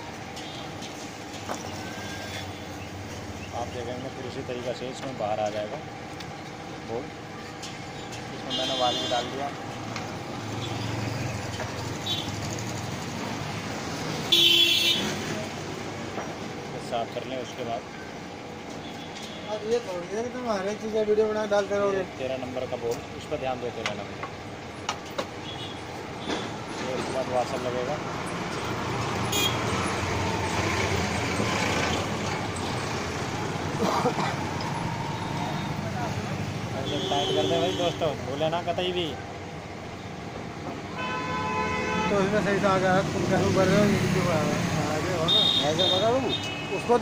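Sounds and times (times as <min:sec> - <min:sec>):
street traffic: 0:00.0 - 0:47.0
vehicle horn honking: 0:08.5 - 0:09.4, 0:14.3 - 0:15.2, 0:29.3 - 0:29.7, 0:36.8 - 0:38.1, 0:41.0 - 0:42.3, 0:45.3 - 0:47.0.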